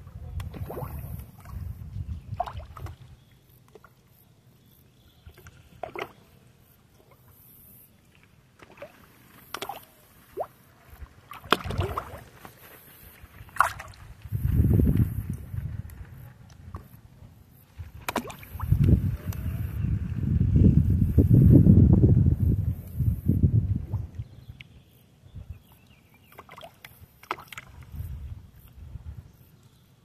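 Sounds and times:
low rumble on microphone: 0.0s - 3.2s, 13.9s - 25.7s
water sloshing and splashing: 0.4s - 4.1s, 5.3s - 6.3s, 8.1s - 14.3s, 17.8s - 19.0s, 26.2s - 28.0s.

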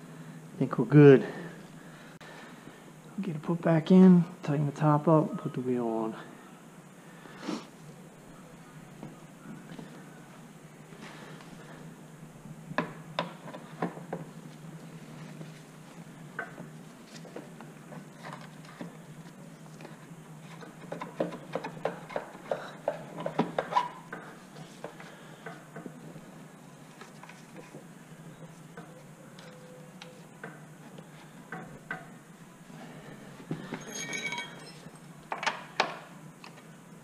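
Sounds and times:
metallic clinks: 33.7s - 35.1s.

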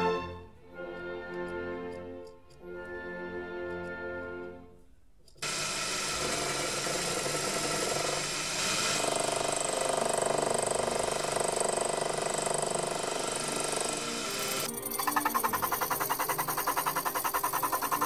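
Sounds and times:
lathe cutting steel tube: 5.4s - 18.0s.

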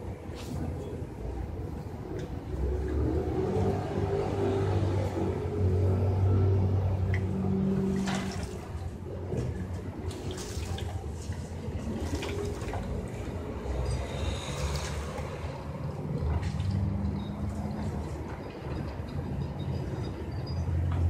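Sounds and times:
pigeons splashing water: 2.0s - 18.3s.

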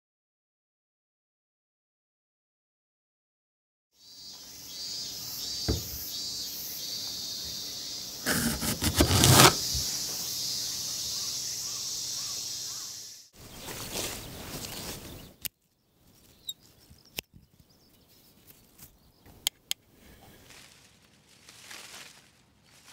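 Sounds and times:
footsteps through grass: 13.4s - 15.3s, 20.3s - 22.9s.

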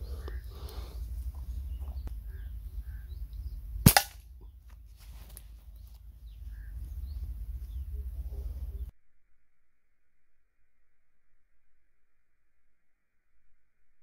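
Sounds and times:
slingshot crack: 3.8s - 4.4s.

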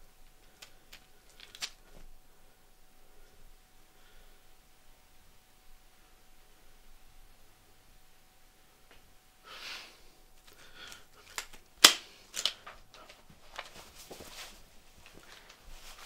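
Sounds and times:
objects rustling: 0.2s - 2.2s, 10.4s - 16.0s
sharp clicks of objects: 10.4s - 13.0s.

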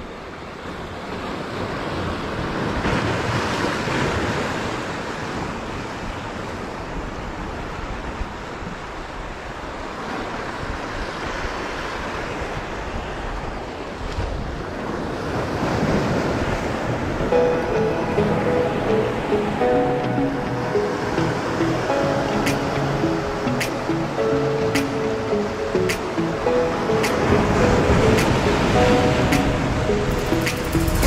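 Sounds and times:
surf breaking over rocks: 14.8s - 31.0s.

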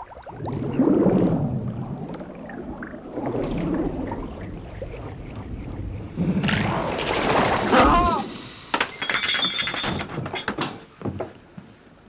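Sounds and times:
liquid sloshing and gurgling: 0.0s - 7.8s.

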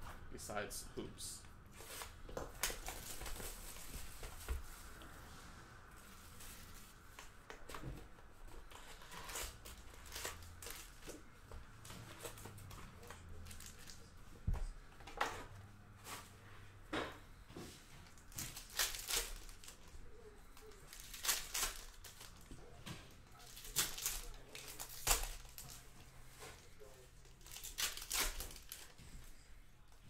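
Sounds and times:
foil packs rustling: 1.8s - 4.6s, 8.6s - 11.1s, 18.0s - 29.5s
plastic shrink wrap crinkling: 8.7s - 11.1s, 18.1s - 25.9s, 26.6s - 29.1s.

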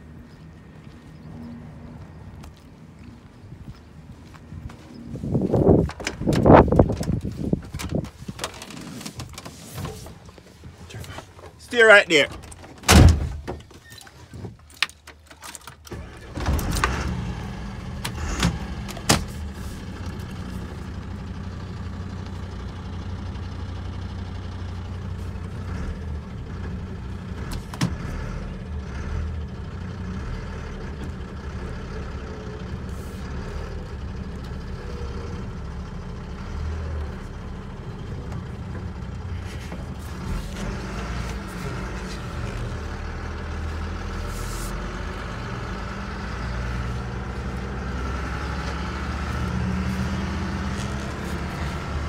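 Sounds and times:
diesel engine starting and idling: 15.2s - 52.0s.

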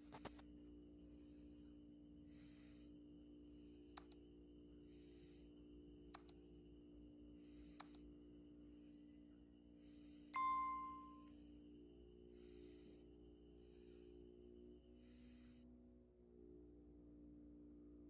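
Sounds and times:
faint steady hum: 0.0s - 18.0s
mouse double clicks: 6.1s - 6.4s
bright bell chime: 10.4s - 11.3s.

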